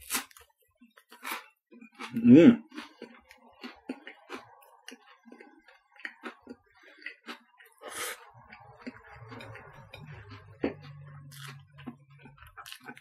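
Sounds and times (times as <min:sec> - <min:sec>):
mouth chewing: 0:00.0 - 0:13.0
low hum: 0:08.3 - 0:12.7.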